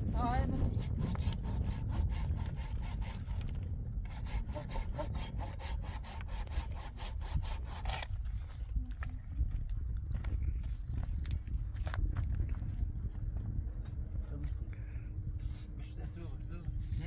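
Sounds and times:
hand saw sawing wood: 0.2s - 8.1s.

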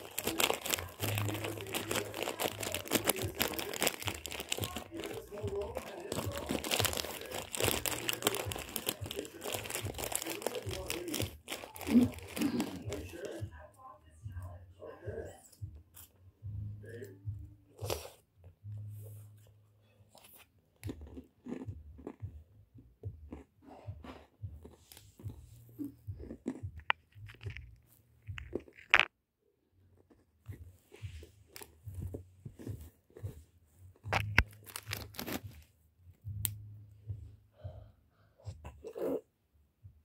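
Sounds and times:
crunching and crackling: 0.0s - 13.4s, 24.6s - 29.1s, 29.9s - 35.7s.

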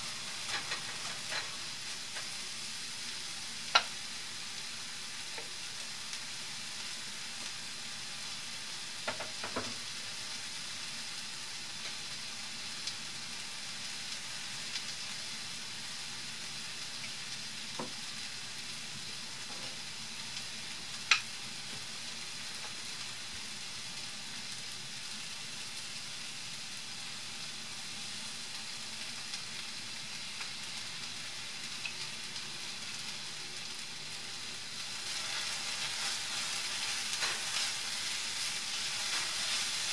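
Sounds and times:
onions sizzling in oil: 0.0s - 39.9s.

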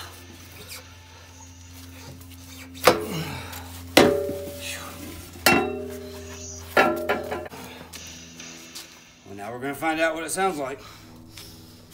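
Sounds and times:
metal exhaust pipe clanking: 4.0s - 7.8s.

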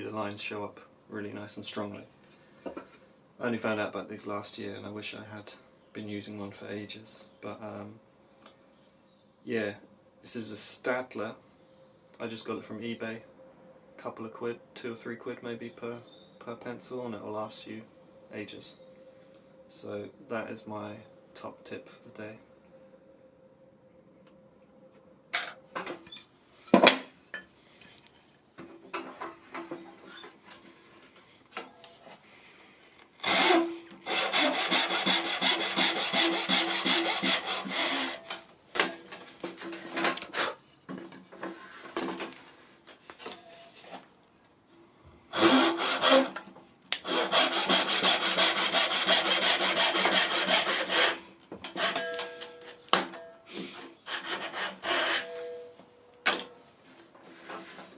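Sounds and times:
knocks and handling of wood: 26.7s - 32.2s, 38.2s - 44.1s, 51.4s - 57.9s
hand saw cutting wood: 33.2s - 38.4s, 40.1s - 40.6s, 45.3s - 46.4s, 47.0s - 52.4s, 53.5s - 55.5s.

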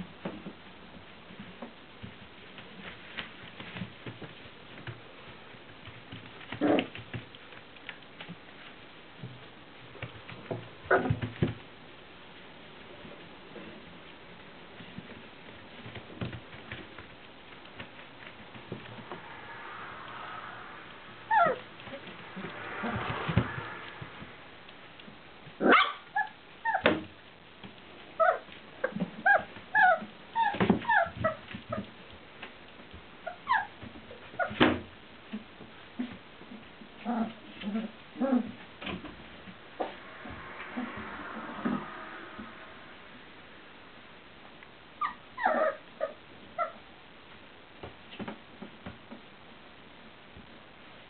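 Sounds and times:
puppies whimpering and yipping: 21.3s - 21.9s, 29.2s - 31.9s, 33.3s - 33.8s, 45.0s - 46.8s.

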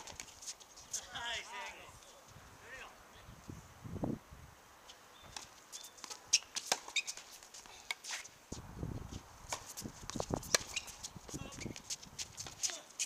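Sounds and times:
shoe squeaks: 4.9s - 7.4s, 9.6s - 13.0s
tennis balls bouncing and struck: 5.2s - 8.2s, 9.5s - 12.8s.

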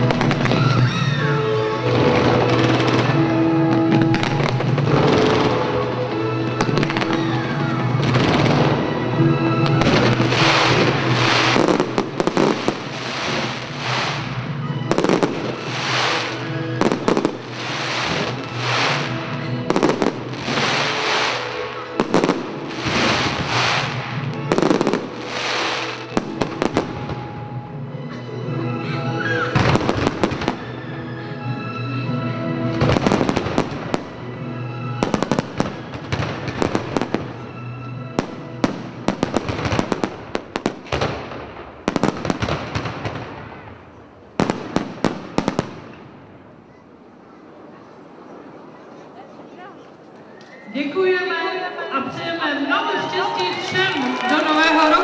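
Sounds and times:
music: 0.0s - 46.0s, 50.8s - 55.0s
firework shells bursting: 15.0s - 26.9s.

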